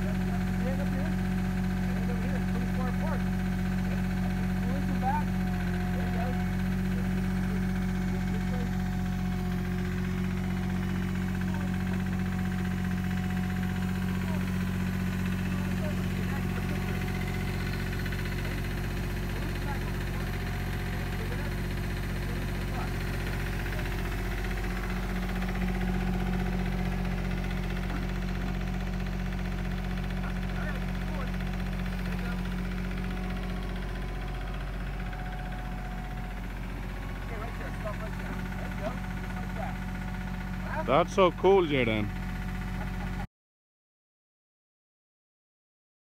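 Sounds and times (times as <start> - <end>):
excavator diesel engine running: 0.0 - 43.3.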